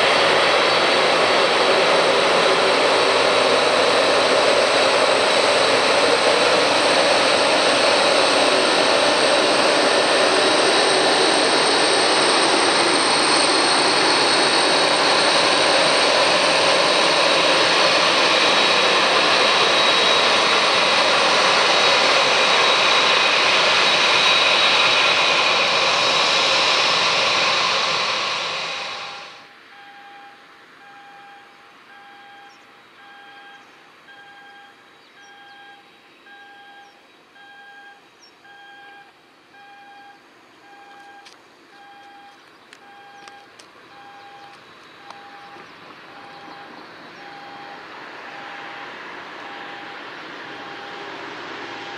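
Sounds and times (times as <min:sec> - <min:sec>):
jet engines roaring with whine: 0:00.0 - 0:51.9
faint electronic beeping: 0:29.4 - 0:51.9.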